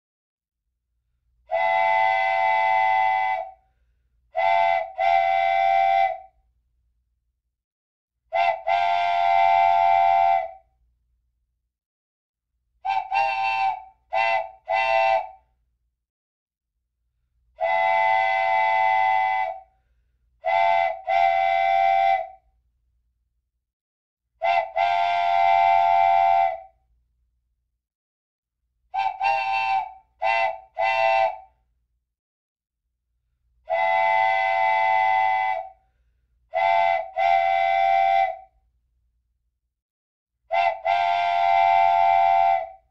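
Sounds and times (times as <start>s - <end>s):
whistle blasts: 40.5s - 42.9s.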